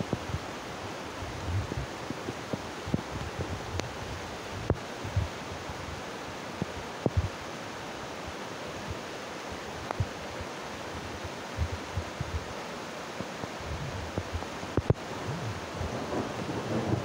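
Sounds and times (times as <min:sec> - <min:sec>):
river rushing over rocks: 0:00.0 - 0:17.0
low thumps on microphone: 0:01.4 - 0:01.9, 0:04.6 - 0:05.3, 0:07.0 - 0:07.4, 0:13.7 - 0:17.0.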